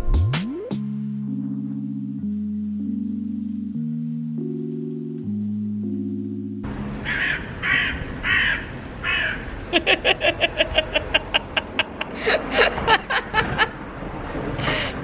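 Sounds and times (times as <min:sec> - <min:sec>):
crow cawing: 0:07.0 - 0:09.6
person giggling: 0:09.7 - 0:13.8.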